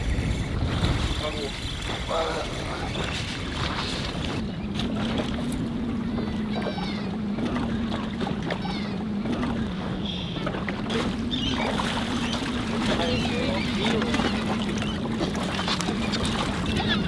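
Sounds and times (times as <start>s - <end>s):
sea wash: 0.0s - 17.0s
seabirds calling: 0.0s - 17.0s
outboard motor idling: 3.6s - 17.0s.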